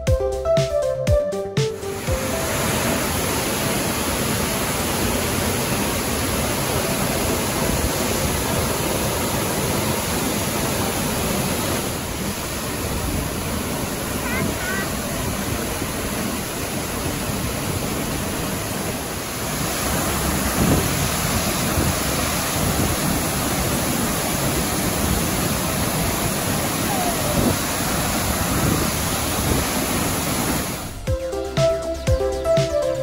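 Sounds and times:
waterfall rushing: 0:01.7 - 0:31.1.

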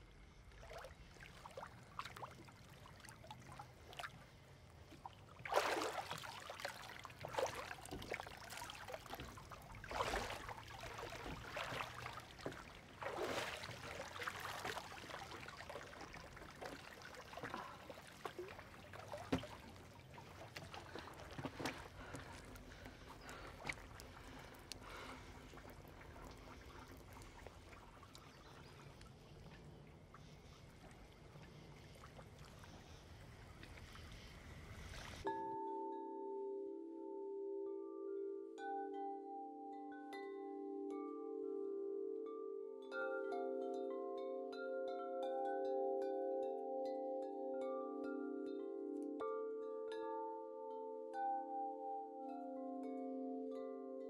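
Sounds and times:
water splashing and sloshing: 0:00.0 - 0:35.3.

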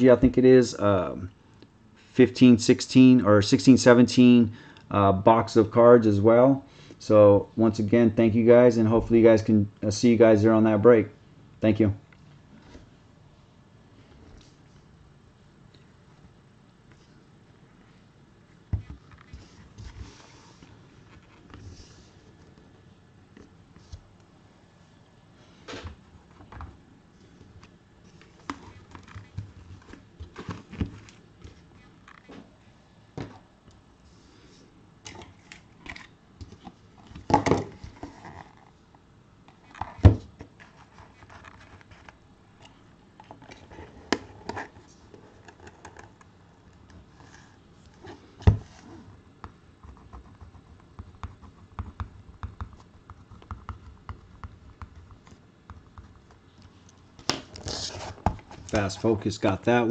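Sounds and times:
boxes handled on a table: 0:27.4 - 0:33.5.

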